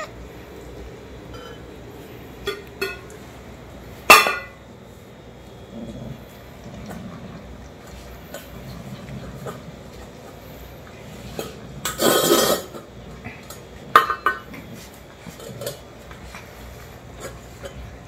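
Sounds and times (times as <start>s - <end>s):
metal bowls clattering on concrete: 1.2s - 1.7s, 2.4s - 3.3s, 4.0s - 4.6s, 6.8s - 18.0s.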